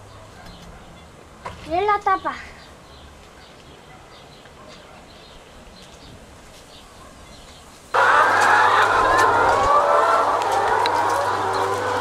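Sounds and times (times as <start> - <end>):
hens clucking and cackling: 8.0 - 12.0.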